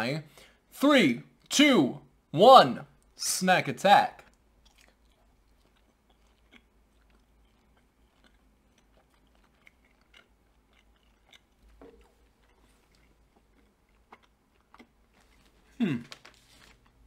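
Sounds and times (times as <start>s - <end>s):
chewing mouth clicks: 4.2s - 15.7s.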